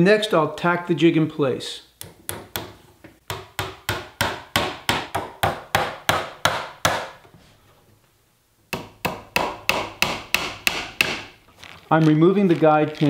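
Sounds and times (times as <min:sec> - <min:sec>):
hammer tapping nails into wood: 0:08.8 - 0:11.3.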